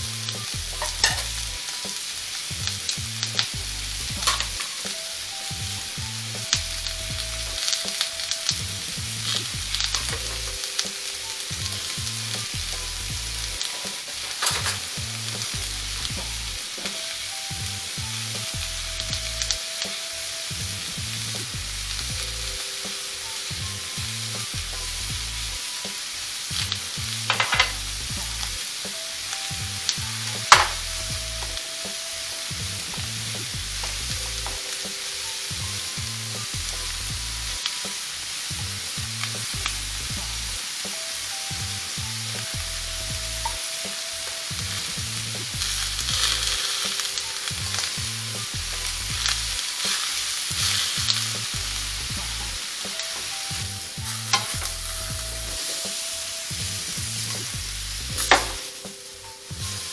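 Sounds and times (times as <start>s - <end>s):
food sizzling on a griddle: 0.0s - 59.9s
metal spatula clinking and scraping: 0.8s - 1.4s, 27.3s - 27.8s, 54.3s - 54.7s.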